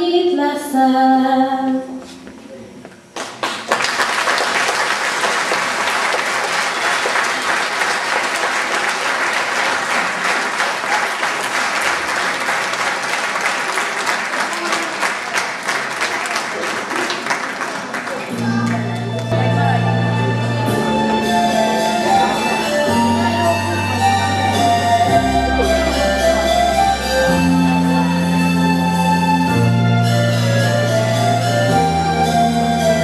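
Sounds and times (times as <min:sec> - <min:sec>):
audience applauding: 0:03.1 - 0:27.0.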